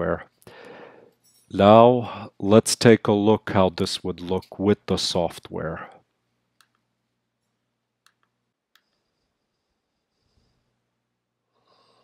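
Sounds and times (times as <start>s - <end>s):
computer mouse clicks: 8.0s - 9.0s.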